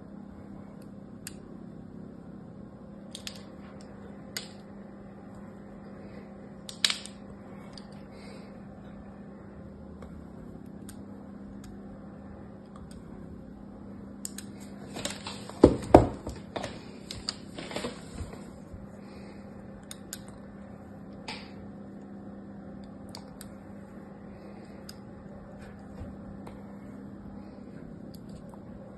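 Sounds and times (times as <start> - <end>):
steady low hum: 0.0 - 28.9.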